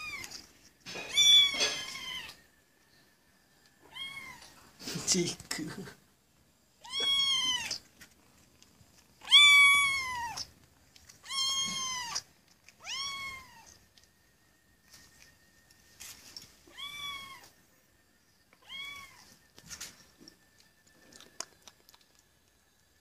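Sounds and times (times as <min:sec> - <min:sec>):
cat meowing: 0:00.0 - 0:00.4, 0:01.0 - 0:02.5, 0:03.8 - 0:04.6, 0:06.8 - 0:07.8, 0:09.2 - 0:10.5, 0:11.2 - 0:13.8, 0:16.7 - 0:17.6, 0:18.6 - 0:19.3.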